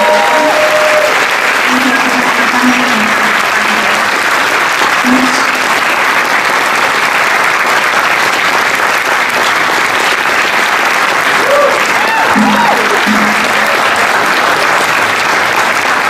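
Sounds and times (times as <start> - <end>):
audience applauding: 0.0 - 16.0.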